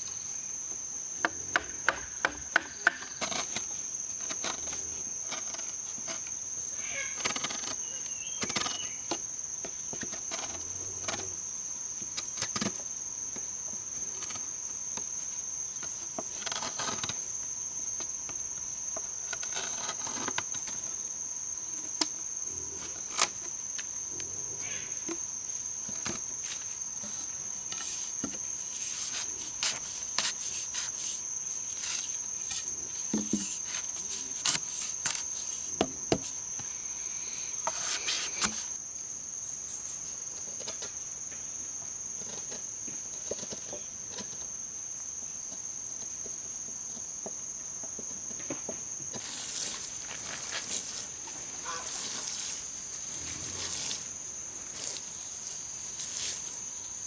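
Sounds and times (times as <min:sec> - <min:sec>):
high-pitched insect drone: 0:00.0 - 0:57.0.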